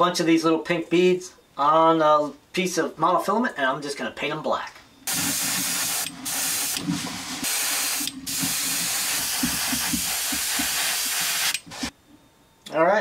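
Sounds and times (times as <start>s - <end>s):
airbrush hissing: 5.1s - 11.9s.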